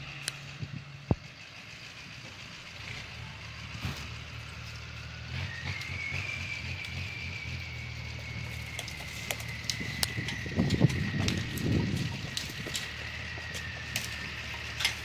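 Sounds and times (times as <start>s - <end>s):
truck engine running low: 0.0s - 15.0s.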